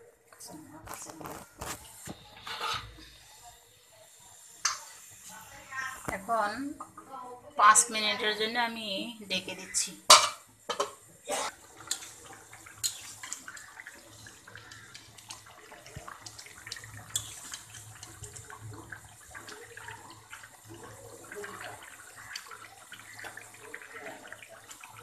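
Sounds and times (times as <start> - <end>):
metal lid clanking on pot: 10.1 - 11.0
curry bubbling and spattering: 11.5 - 25.0.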